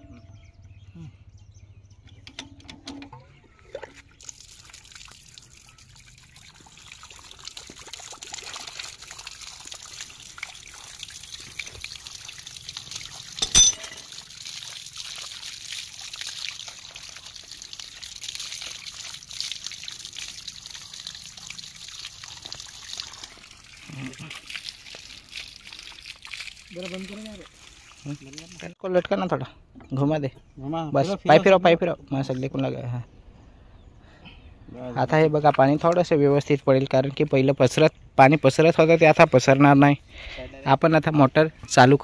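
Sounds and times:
water splashing onto concrete: 0:03.9 - 0:28.8.

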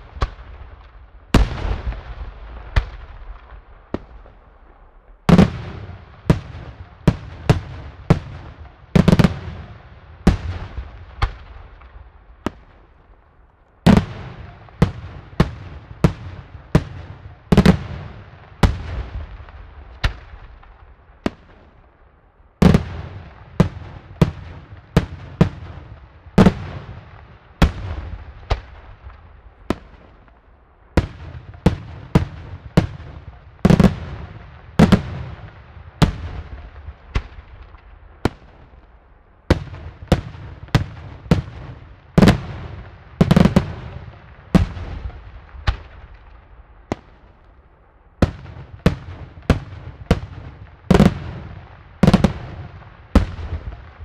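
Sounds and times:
fireworks bursting with loud bangs: 0:00.0 - 0:22.0, 0:22.6 - 0:54.0.

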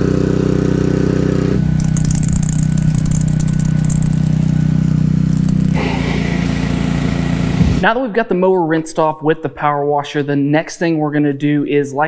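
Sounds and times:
pressure washer engine running: 0:00.0 - 0:07.8.

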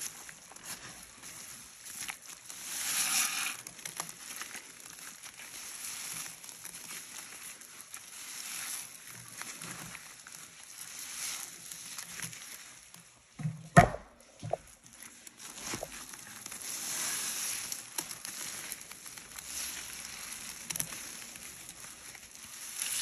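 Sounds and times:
sponge crunching in cleaning powder: 0:00.0 - 0:13.2, 0:14.2 - 0:23.0.

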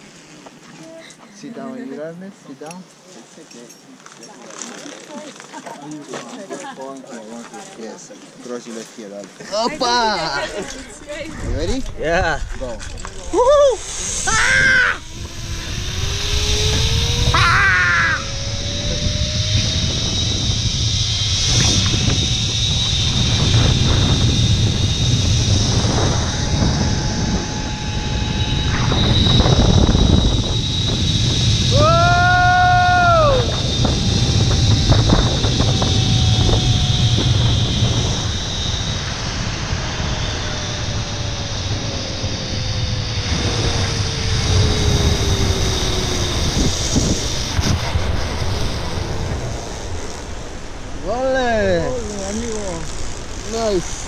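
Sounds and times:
wind rumble on microphone: 0:10.5 - 0:54.0
pulleys whining on cable: 0:13.0 - 0:50.5, 0:51.1 - 0:54.0.

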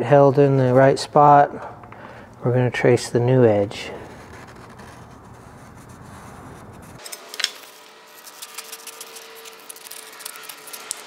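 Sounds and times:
tin snips cutting cardboard: 0:07.0 - 0:11.0.

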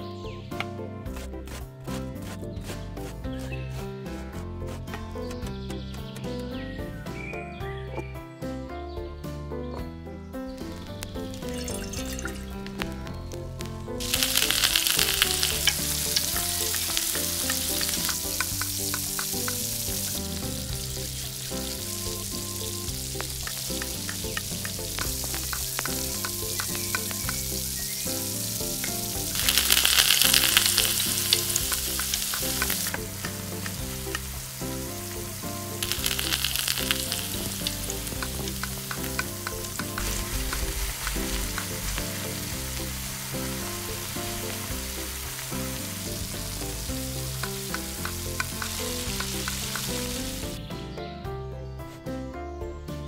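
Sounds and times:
food sizzling in hot oil: 0:10.7 - 0:13.4, 0:14.0 - 0:50.6
utensil stirring clicks: 0:14.0 - 0:20.2, 0:35.8 - 0:42.9.

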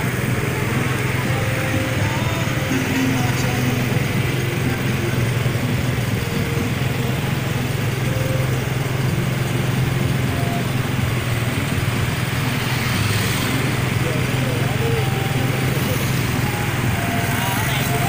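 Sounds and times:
small vehicle engine running: 0:00.0 - 0:18.0
wind and road noise: 0:00.0 - 0:18.0.

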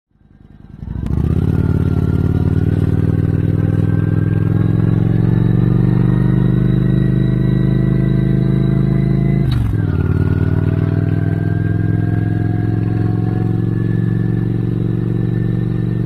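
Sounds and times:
motorcycle engine running: 0:00.1 - 0:16.0.

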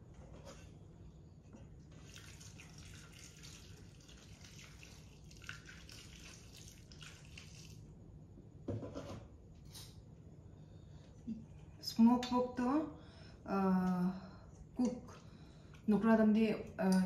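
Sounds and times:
hot water pouring into metal bowl: 0:01.9 - 0:07.9.

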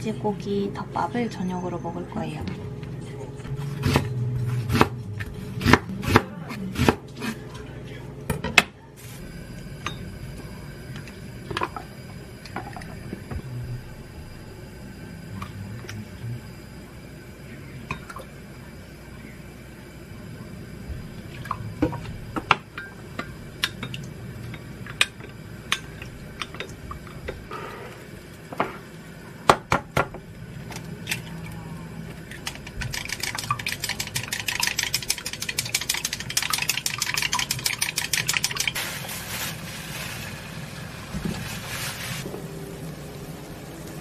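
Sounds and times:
egg beaten in glass cup: 0:32.5 - 0:38.8.

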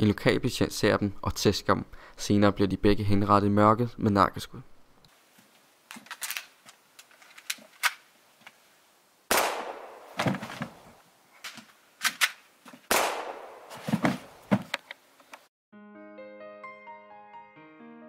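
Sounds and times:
pistol shots echoing: 0:09.3 - 0:10.2, 0:12.9 - 0:13.8.

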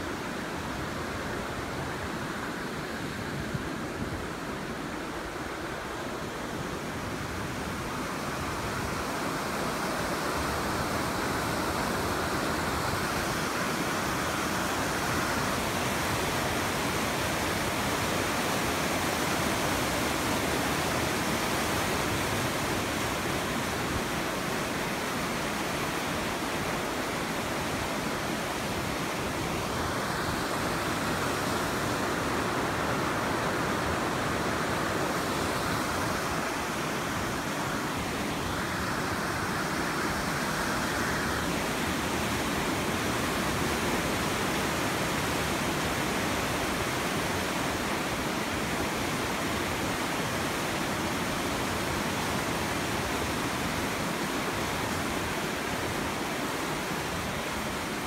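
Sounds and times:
river rushing: 0:00.0 - 0:58.0.

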